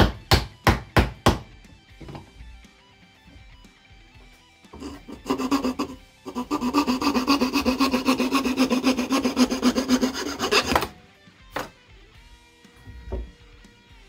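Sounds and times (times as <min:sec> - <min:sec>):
metal blade rasping strokes: 0:04.8 - 0:11.0.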